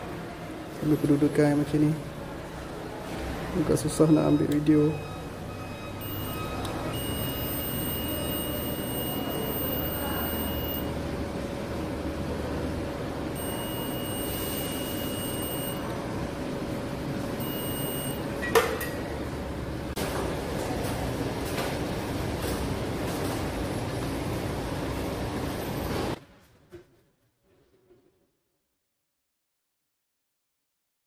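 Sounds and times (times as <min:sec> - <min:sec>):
steady background hum: 0:00.0 - 0:27.7
multimeter continuity beeps: 0:04.2 - 0:10.9, 0:13.3 - 0:15.9, 0:17.4 - 0:18.3.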